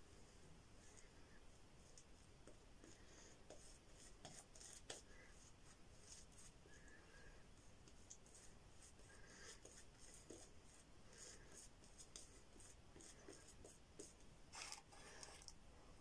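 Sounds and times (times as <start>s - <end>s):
shaving brush scratchy strokes: 8.0s - 15.5s.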